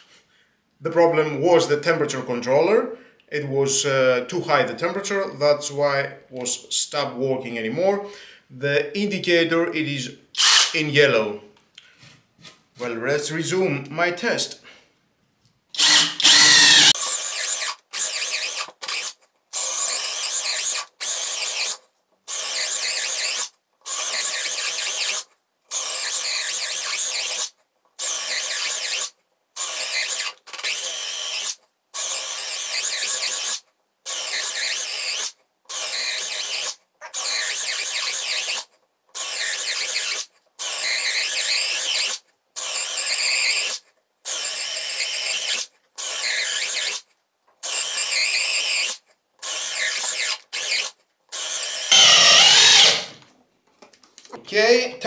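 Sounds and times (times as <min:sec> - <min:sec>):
cordless drill drilling: 0:10.4 - 0:10.7, 0:15.8 - 0:21.7, 0:22.3 - 0:25.2, 0:25.8 - 0:31.4, 0:47.7 - 0:53.2
drill motor whine: 0:10.4 - 0:10.7, 0:15.8 - 0:18.5, 0:51.6 - 0:53.2.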